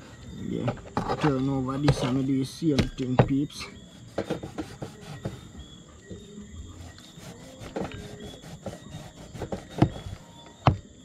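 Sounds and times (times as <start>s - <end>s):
knife sawing through fish skin: 6.8s - 10.2s.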